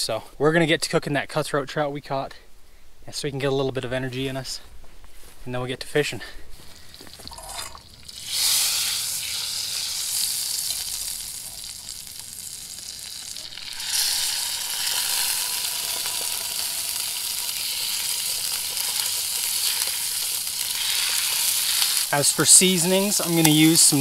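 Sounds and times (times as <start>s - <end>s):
butter sizzling in frying pan: 6.7s - 24.0s.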